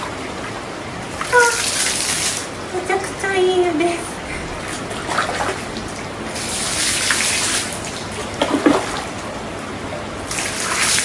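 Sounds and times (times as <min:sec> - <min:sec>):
water running and splashing: 0:00.0 - 0:02.9, 0:04.1 - 0:11.0
basin scooping water sloshes: 0:04.3 - 0:11.0.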